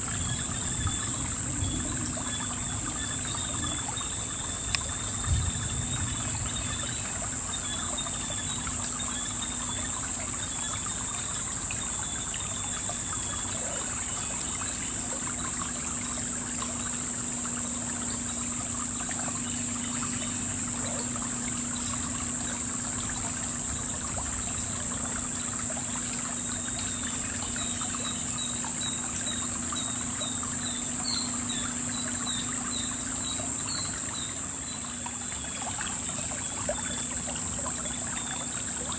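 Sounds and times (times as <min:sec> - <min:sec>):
high insect drone: 0:00.0 - 0:38.9
water trickling over stones: 0:00.0 - 0:38.9.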